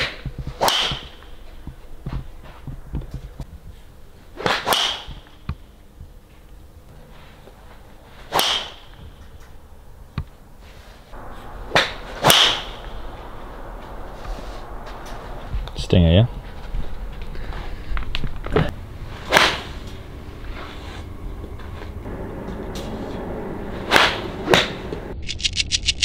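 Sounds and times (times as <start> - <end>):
club swishing through air: 0.0 - 1.2, 4.4 - 5.3, 8.2 - 8.9, 11.2 - 13.0, 19.2 - 21.1, 23.9 - 24.8.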